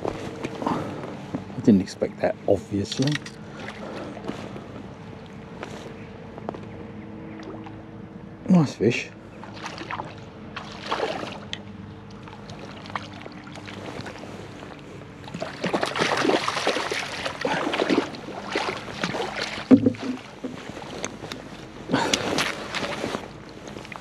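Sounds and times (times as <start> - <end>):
fish splashing in water: 9.4 - 21.1.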